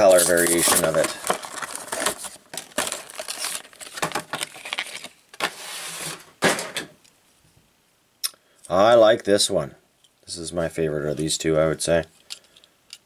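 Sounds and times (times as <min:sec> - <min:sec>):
plastic blister pack crinkling: 0:00.0 - 0:05.5.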